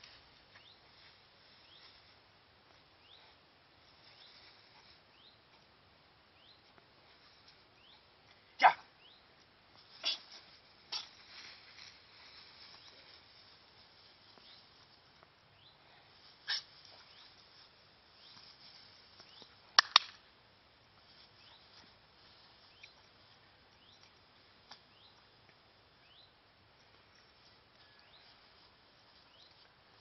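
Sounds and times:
sharp clicks: 0:19.8 - 0:20.2.

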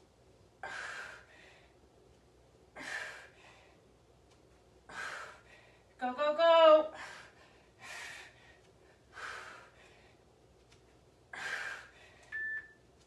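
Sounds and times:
woman breathing hard: 0:00.6 - 0:01.8, 0:02.7 - 0:03.9, 0:04.9 - 0:06.0, 0:06.9 - 0:10.3, 0:11.3 - 0:12.3
short high beep: 0:12.4 - 0:12.8.

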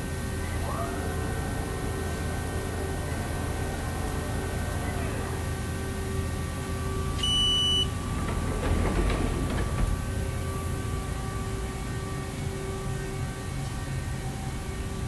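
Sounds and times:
irregular rattling: 0:08.1 - 0:10.4.

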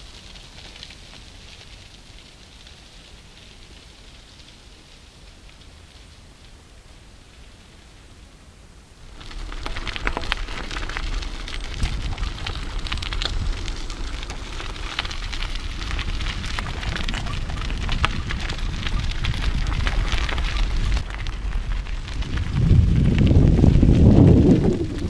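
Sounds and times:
bicycle tyres crunching leaves: 0:00.0 - 0:07.8, 0:09.0 - 0:25.0
wind rumble on microphone: 0:09.1 - 0:25.0.

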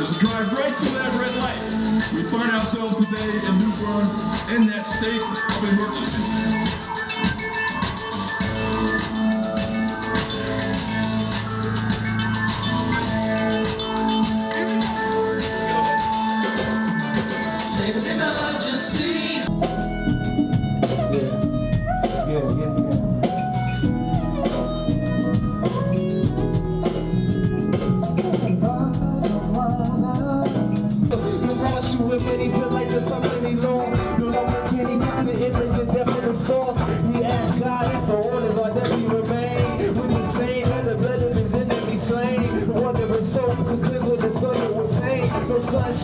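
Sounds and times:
person singing: 0:00.0 - 0:19.6, 0:28.2 - 0:46.0
live band with drums and guitar: 0:00.0 - 0:46.0.

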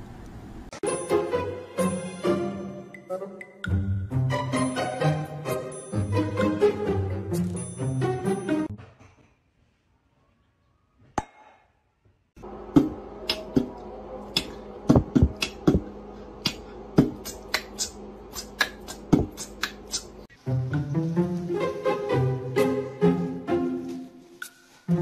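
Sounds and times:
steady low hum: 0:12.4 - 0:20.3.

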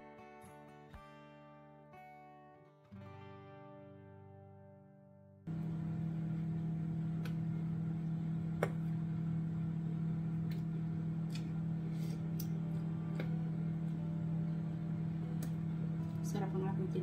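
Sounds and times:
kitchen appliance humming: 0:05.5 - 0:17.0.

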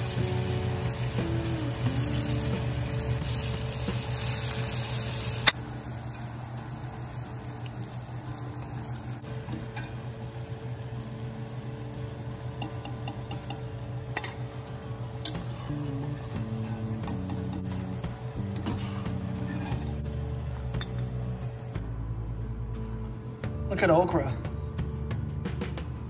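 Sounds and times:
okra deep-frying in oil: 0:00.0 - 0:09.2
metal spoon clinking on pan: 0:12.6 - 0:14.4.

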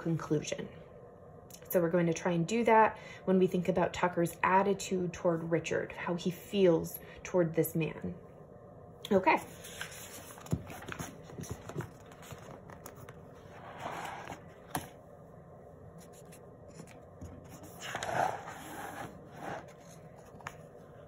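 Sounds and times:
book pages turning: 0:09.5 - 0:15.0, 0:15.9 - 0:21.0.

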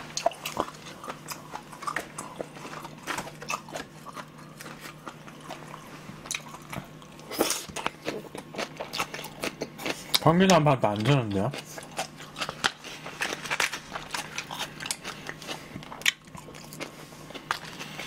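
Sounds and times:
chewing and biting food: 0:00.0 - 0:18.0
faint steady hum: 0:00.0 - 0:18.0.

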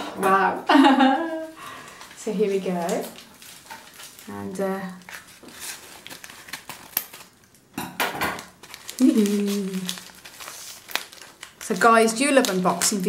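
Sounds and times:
paper crinkling: 0:01.2 - 0:07.7, 0:08.3 - 0:13.0
woman humming: 0:09.0 - 0:10.0.

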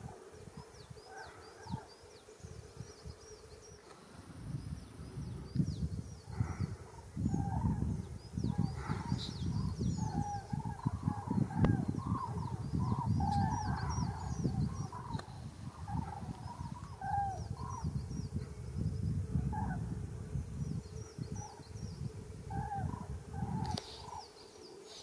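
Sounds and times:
flock of cranes calling: 0:00.0 - 0:02.1, 0:06.2 - 0:18.6, 0:19.2 - 0:20.2, 0:21.0 - 0:25.0.

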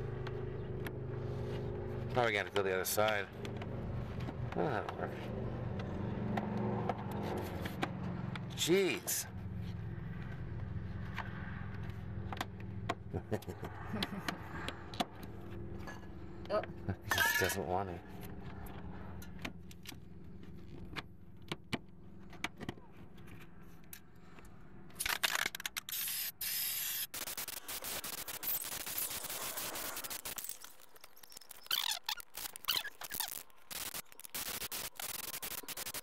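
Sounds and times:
low hum: 0:09.2 - 0:25.0.

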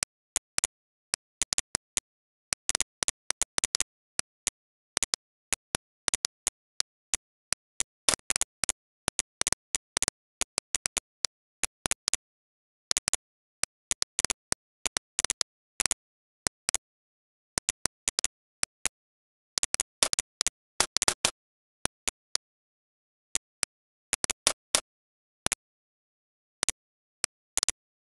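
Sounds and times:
computer mouse clicking: 0:19.6 - 0:21.4, 0:24.2 - 0:24.9.

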